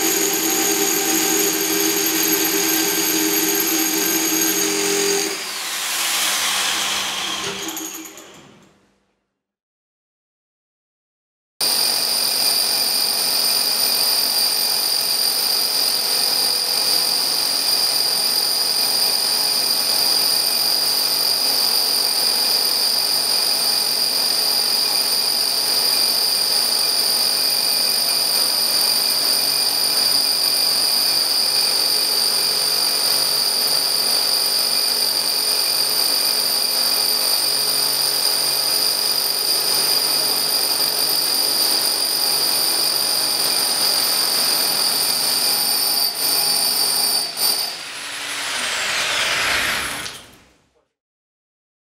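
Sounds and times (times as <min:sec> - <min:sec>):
high whine: 0:00.0 - 0:05.9, 0:46.1 - 0:50.6
rotary hammers drilling concrete: 0:00.0 - 0:08.2.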